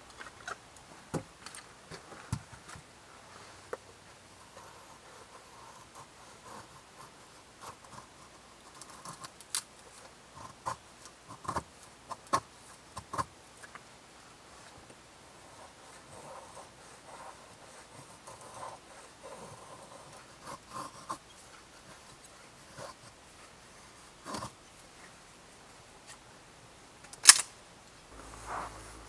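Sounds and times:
sharp click: 27.1 - 27.5.

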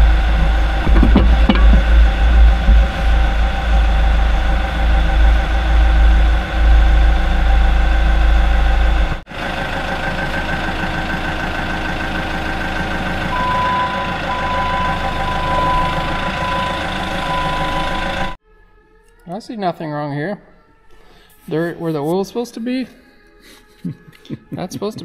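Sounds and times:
diesel engine running: 0.0 - 18.4
heavy low rumble: 0.0 - 18.4
back-up alarm beeping: 13.3 - 18.4.

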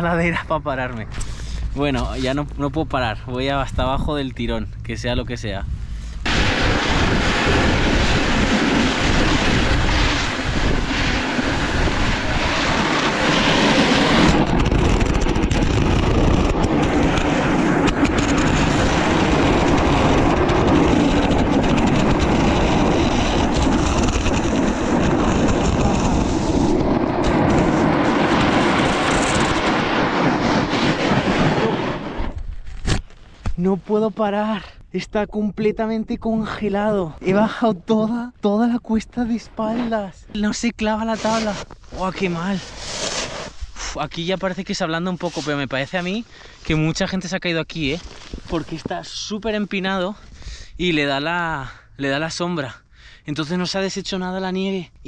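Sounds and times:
snowboard scraping on ice: 6.4 - 33.0, 41.1 - 43.8, 45.1 - 46.2.

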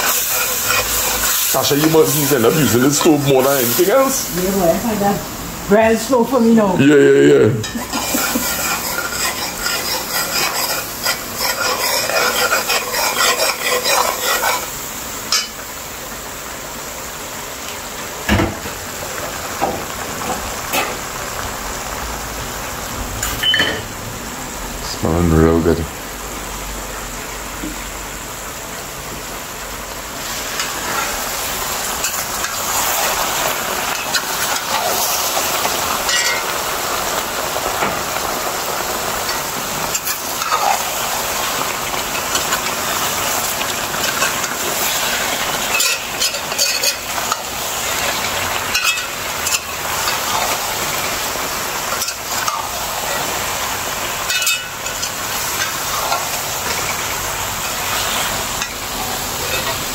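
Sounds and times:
metal ladle scraping a pot: 0.0 - 1.5, 7.6 - 14.8, 45.6 - 47.4
chicken sizzling in hot oil: 0.0 - 59.9.

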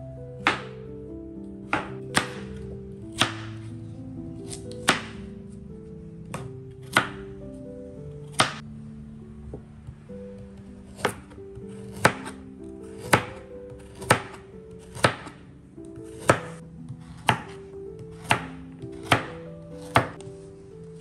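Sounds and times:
knife chopping on cutting board: 0.4 - 0.7, 3.1 - 3.5, 4.5 - 5.2, 6.3 - 7.2, 11.0 - 15.4, 16.0 - 20.2.

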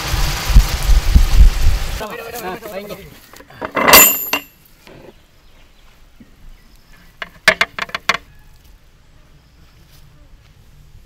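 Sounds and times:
metal cooking pot clanking: 3.6 - 4.5.

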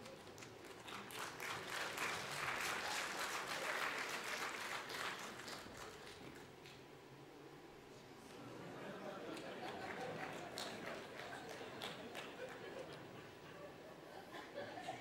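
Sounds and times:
audience applauding: 0.0 - 6.8, 9.1 - 13.2.

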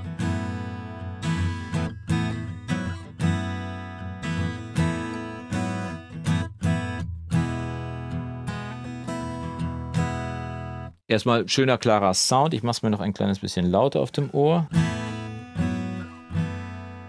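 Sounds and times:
fingerpicked acoustic guitar: 0.0 - 11.0, 14.7 - 17.0.

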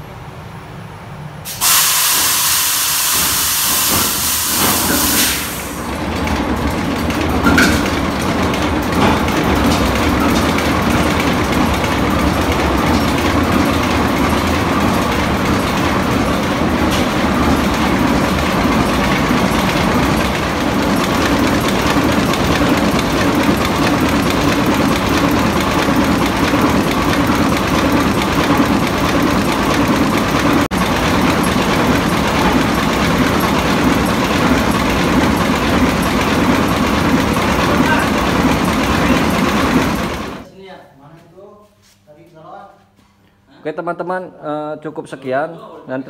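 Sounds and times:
marine diesel engine running: 5.2 - 40.4.

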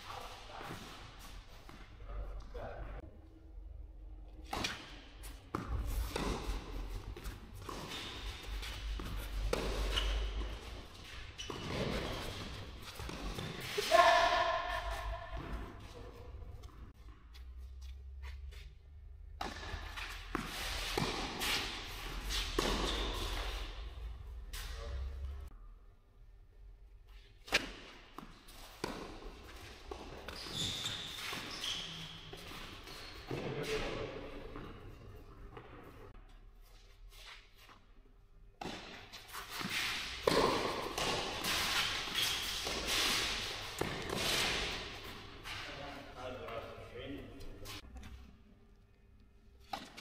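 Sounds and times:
shoes scuffing on clay court: 4.5 - 18.8, 19.4 - 25.2, 38.6 - 48.2
racquet hitting tennis ball: 19.4 - 23.6, 40.0 - 45.1
tennis ball bouncing: 40.2 - 41.6
tennis ball struck by rackets: 40.2 - 41.6.

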